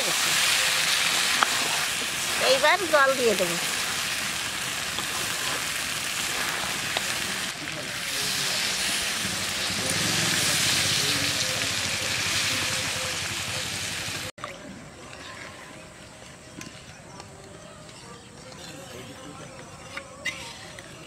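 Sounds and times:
hot oil splashing and hissing: 0:00.0 - 0:14.3.

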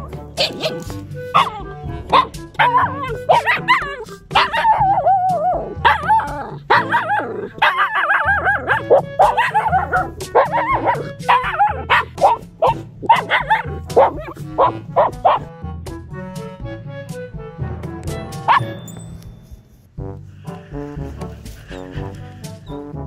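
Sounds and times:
puppy whining and yipping: 0:00.0 - 0:15.5, 0:18.5 - 0:18.8
background music: 0:00.0 - 0:23.0.

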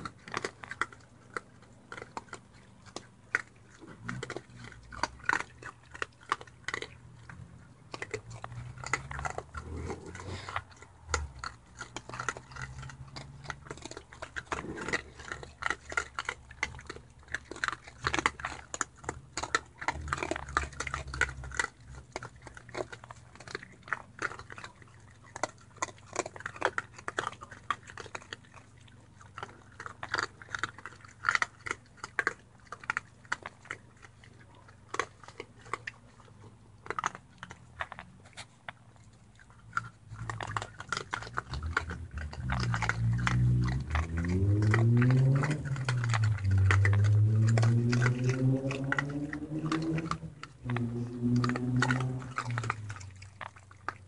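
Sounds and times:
raccoons crunching dry kibble: 0:00.0 - 0:54.0
low hum: 0:41.4 - 0:53.7.

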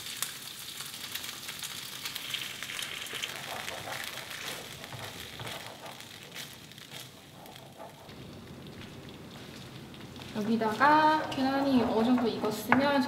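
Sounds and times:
sauce sizzling in a frying pan: 0:00.0 - 0:13.0
wooden spatula stirring: 0:03.0 - 0:13.0.

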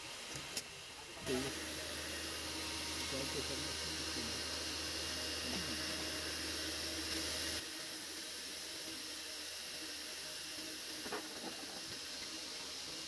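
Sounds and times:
steady background hiss: 0:00.0 - 0:13.0.

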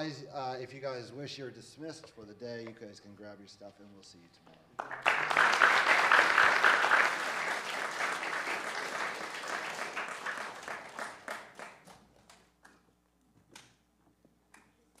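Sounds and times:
audience applauding: 0:04.8 - 0:12.1.

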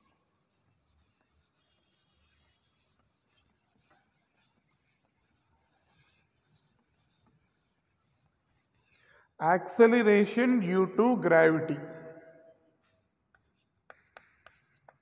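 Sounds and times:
cloth wiping chalkboard: 0:00.0 - 0:08.9, 0:12.8 - 0:15.0.

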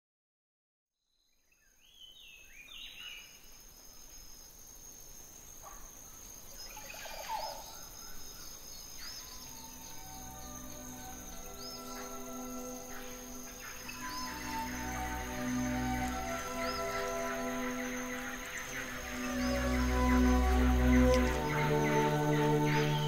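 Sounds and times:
bird calls: 0:05.6 - 0:23.0
high-pitched insect drone: 0:08.9 - 0:23.0.

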